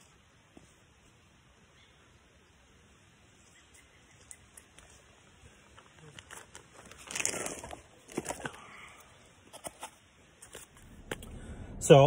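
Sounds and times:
phone handling rustle: 0:05.7 - 0:08.7, 0:09.4 - 0:11.2.

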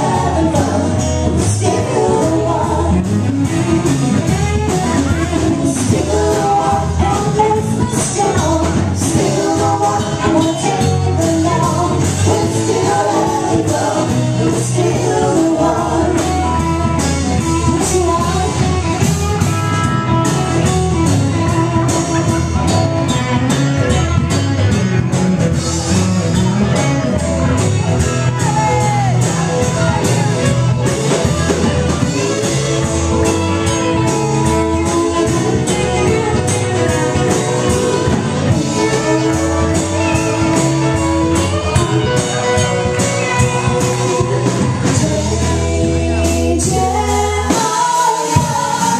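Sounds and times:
person singing: 0:00.0 - 0:19.1, 0:31.2 - 0:48.9
live rock band playing: 0:00.0 - 0:48.9.

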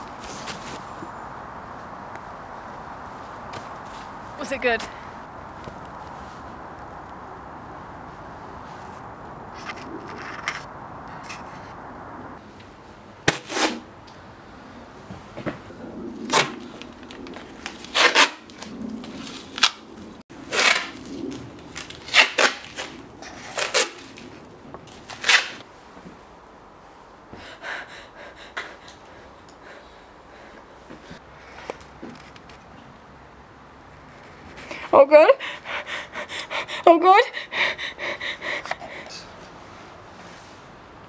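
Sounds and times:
tape ripping off roll: 0:13.3 - 0:13.9, 0:16.2 - 0:24.3, 0:24.9 - 0:25.6.

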